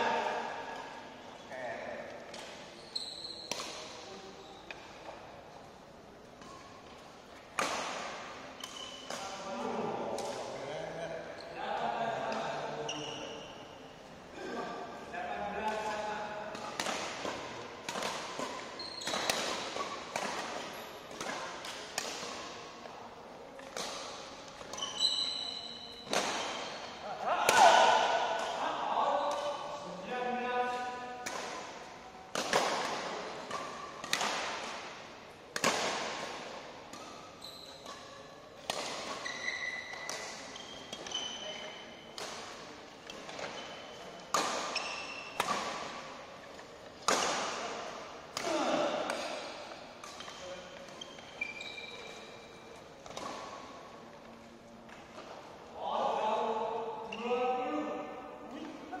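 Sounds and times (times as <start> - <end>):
racquets hitting shuttlecock: 2.0 - 4.1, 6.3 - 10.6, 15.6 - 22.9, 23.6 - 28.7, 30.7 - 55.6
shoes squeaking on court floor: 2.2 - 5.3, 6.3 - 10.4, 11.2 - 11.6, 12.6 - 14.1, 15.7 - 22.9, 23.5 - 27.1, 35.6 - 47.4, 48.4 - 55.4
high shoe squeak: 2.7 - 3.7, 8.6 - 9.1, 12.8 - 13.8, 18.6 - 20.0, 24.7 - 27.0, 37.1 - 38.2, 39.1 - 42.1, 43.5 - 45.4, 50.2 - 52.8.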